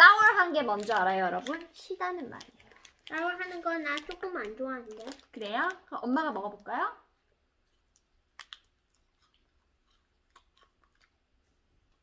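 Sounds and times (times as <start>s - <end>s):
person chewing candy: 7.5s - 12.0s.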